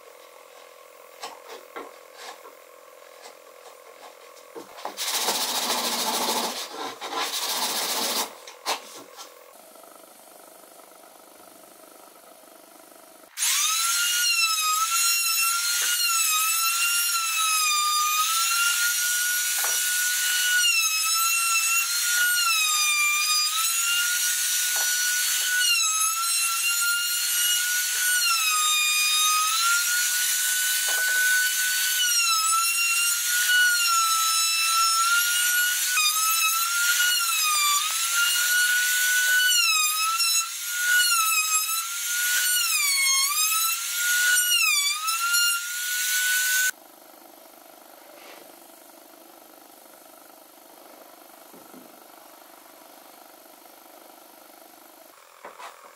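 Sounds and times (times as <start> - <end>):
trim router whining: 13.3 - 46.8.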